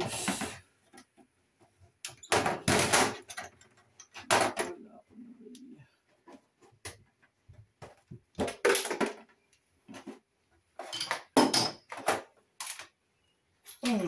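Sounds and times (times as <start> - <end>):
metal tools clinking on steel sink: 10.8 - 11.9.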